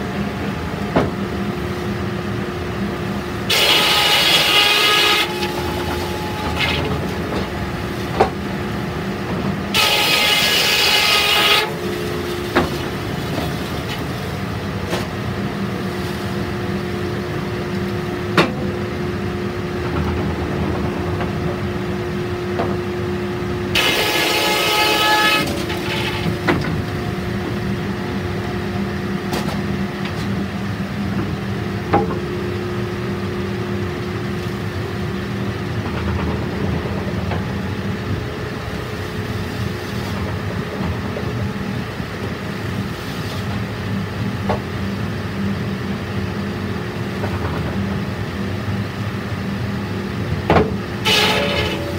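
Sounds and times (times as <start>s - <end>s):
saw blade whine cutting wood: 3.5s - 7.5s, 9.7s - 14.1s, 23.7s - 26.3s, 51.0s - 51.9s.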